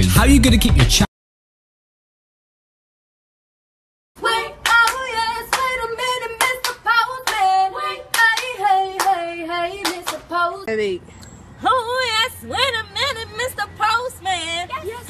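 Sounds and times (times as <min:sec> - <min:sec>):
hand claps: 0:04.6 - 0:05.7, 0:06.4 - 0:07.5, 0:08.1 - 0:09.2, 0:09.8 - 0:10.2.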